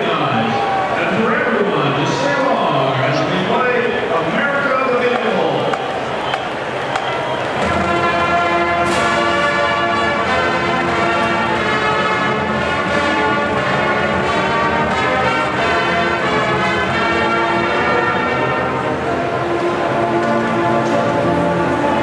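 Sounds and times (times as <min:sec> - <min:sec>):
marching band brass chords: 0:00.0 - 0:22.0
percussion crash: 0:07.6 - 0:09.6.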